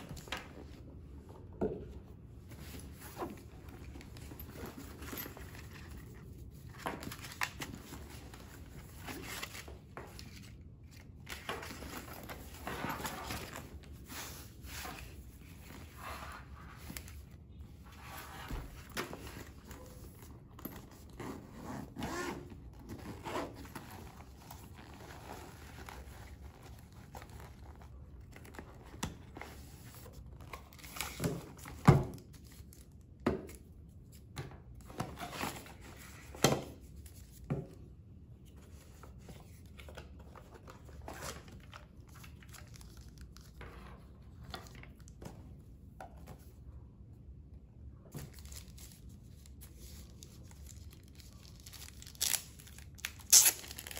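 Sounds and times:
packaging crinkling and tearing: 48.3 - 53.9.

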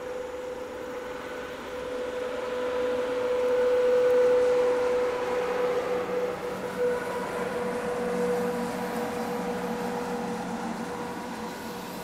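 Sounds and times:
constant hum: 0.0 - 12.0
train wheels rumbling on track: 0.0 - 12.0.

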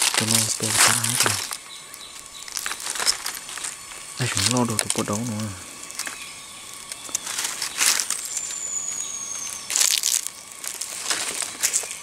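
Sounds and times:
footsteps on dry leaves: 0.0 - 12.0
thin high whistle: 7.1 - 11.1.

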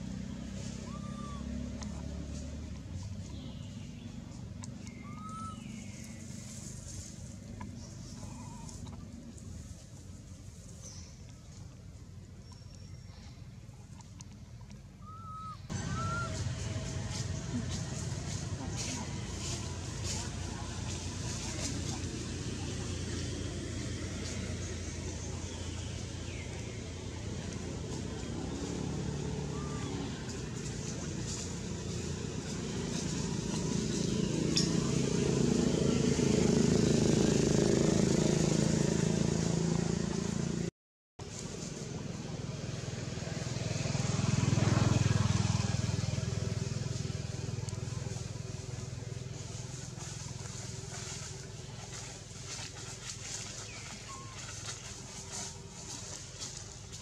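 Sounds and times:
vehicle engine passing by: 0.0 - 12.2, 15.0 - 57.0
low motor drone: 0.0 - 40.7.

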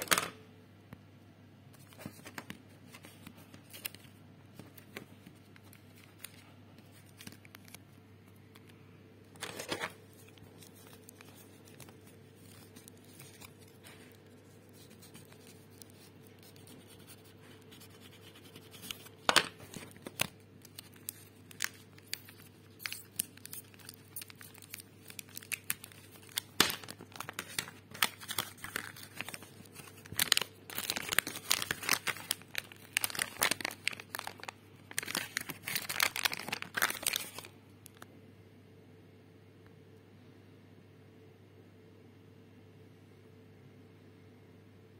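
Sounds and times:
plastic packet crinkling: 1.8 - 8.6, 9.3 - 38.0.

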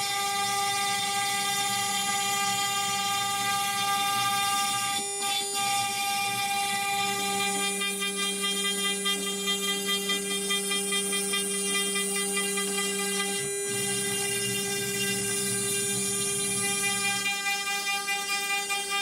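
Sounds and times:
router spindle whining: 0.0 - 19.0.

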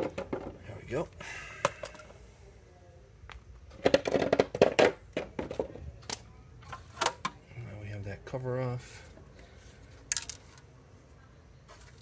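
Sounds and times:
clicks of handling parts: 9.9 - 10.7.

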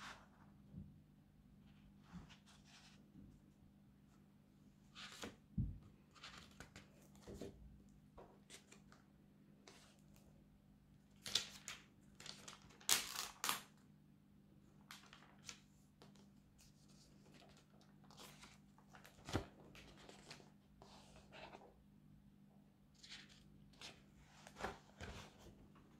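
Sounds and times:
paper pages rustling: 16.6 - 21.7.

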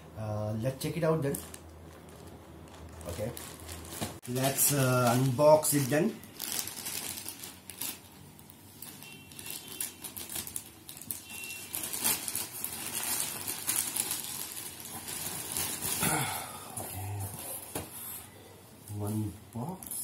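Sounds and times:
plastic bag crinkling: 1.2 - 16.3.

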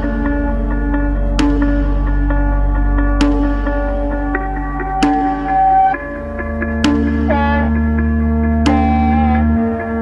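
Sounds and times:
ambient electronic music: 0.0 - 10.0.

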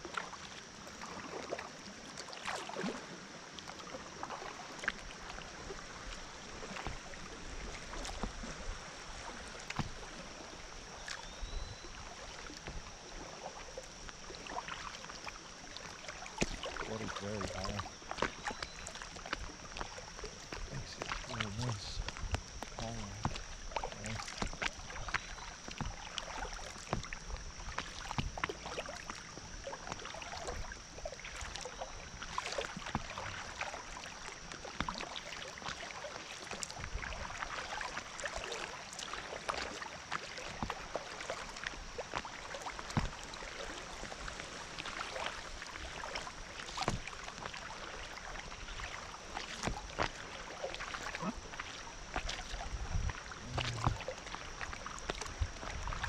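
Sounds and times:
water slapping kayak hull: 0.0 - 56.0
creek water rushing: 19.8 - 22.2.

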